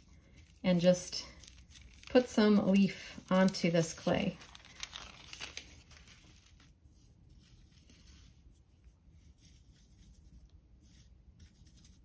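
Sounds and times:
metal leaf rustling and crinkling: 0:00.0 - 0:08.5.

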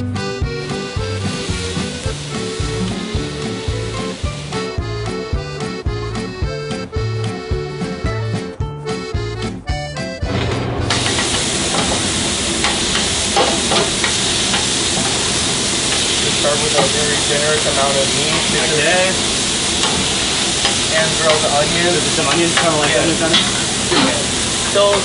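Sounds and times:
meat sizzling on griddle: 0:00.6 - 0:04.8, 0:10.9 - 0:25.0.

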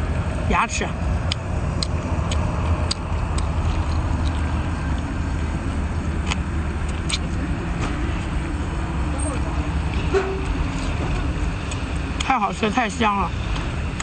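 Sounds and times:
person chewing and sucking: 0:06.8 - 0:07.3
wet mouth clicks: 0:06.9 - 0:07.4.

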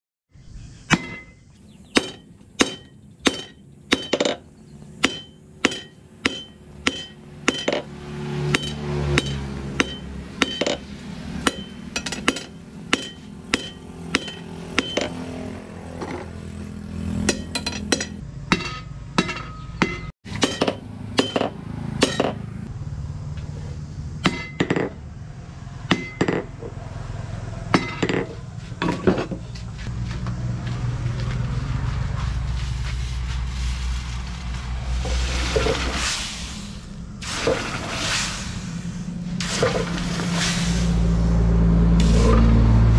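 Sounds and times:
hammer striking metal on anvil: 0:00.9 - 0:04.4, 0:05.0 - 0:07.9, 0:08.5 - 0:15.2, 0:17.2 - 0:22.4, 0:24.2 - 0:25.0, 0:25.9 - 0:26.5.

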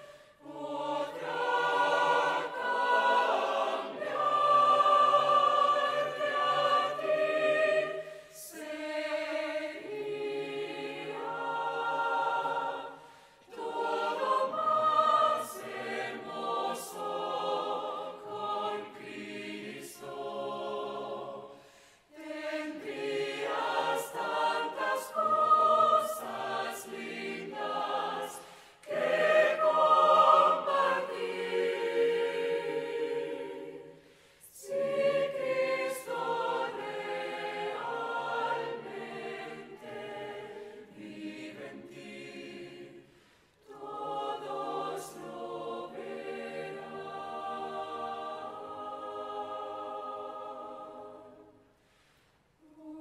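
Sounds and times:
mixed choir singing: 0:00.0 - 0:51.8, 0:52.6 - 0:53.0.

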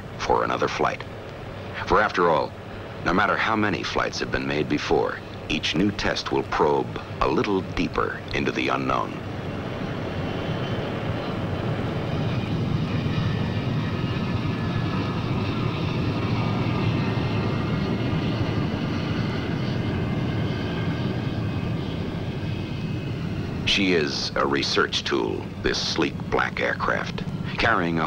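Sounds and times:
jet engines running: 0:00.0 - 0:28.0.

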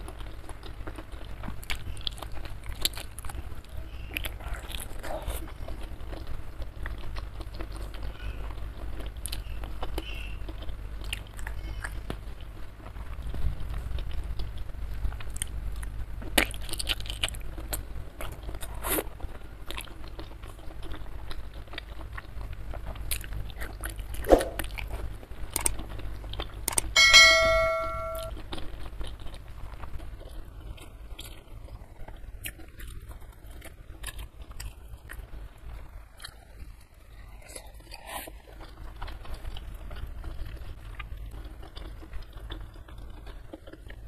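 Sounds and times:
close chewing and crunching: 0:00.0 - 0:27.0, 0:28.3 - 0:44.0
bell-like chime: 0:27.0 - 0:28.3.

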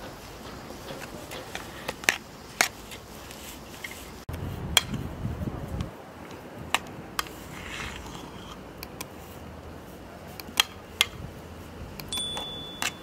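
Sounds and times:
spoon tapping bowl: 0:12.1 - 0:13.0.

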